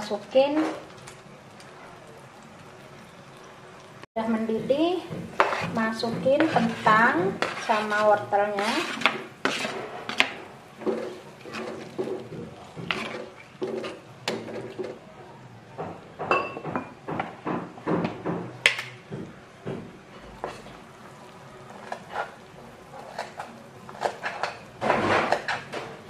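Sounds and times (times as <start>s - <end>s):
metal ladle scraping a pan: 5.3s - 14.8s, 21.7s - 26.0s.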